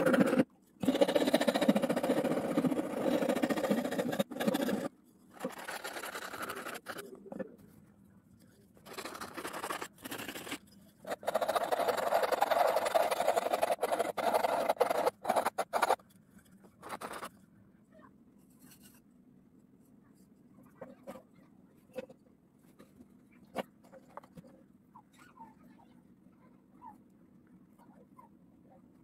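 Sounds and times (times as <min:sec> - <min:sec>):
metal file scraping wood: 0:00.0 - 0:07.4, 0:08.8 - 0:16.1.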